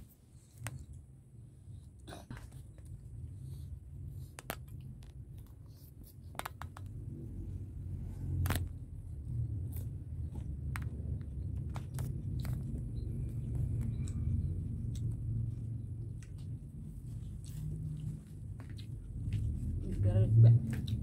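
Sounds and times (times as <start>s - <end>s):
low rumble: 6.8s - 21.0s
mouth clicks and smacks: 9.5s - 19.4s.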